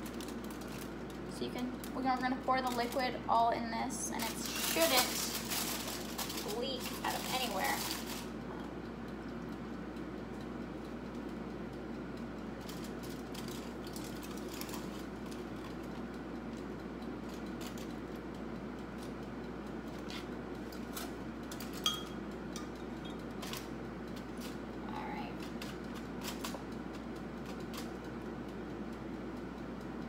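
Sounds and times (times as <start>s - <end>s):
faint clicks and crinkles: 0.0s - 3.3s, 4.1s - 9.6s, 10.4s - 21.9s
ringing glass clink: 21.8s - 22.2s.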